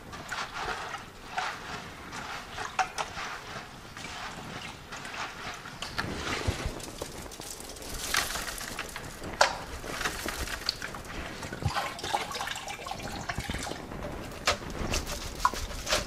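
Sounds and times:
water splashing into plastic bucket: 8.0 - 16.0.

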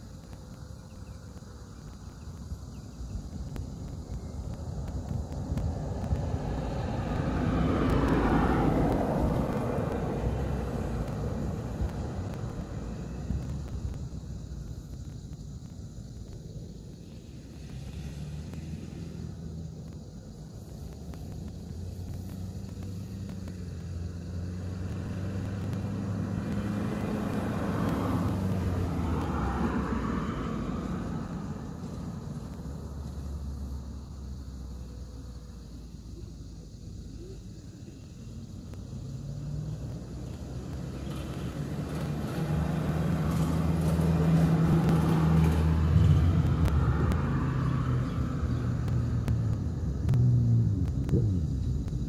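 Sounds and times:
car driving past: 5.8 - 13.7, 17.2 - 19.8, 20.9 - 35.4, 39.0 - 52.0.

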